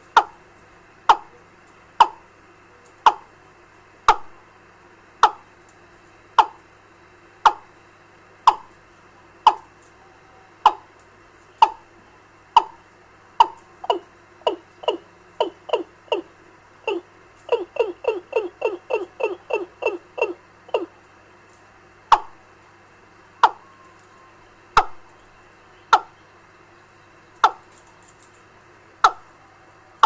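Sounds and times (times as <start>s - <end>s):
bird lure call through loudspeaker: 13.4s - 16.3s, 16.9s - 21.0s, 23.4s - 26.3s.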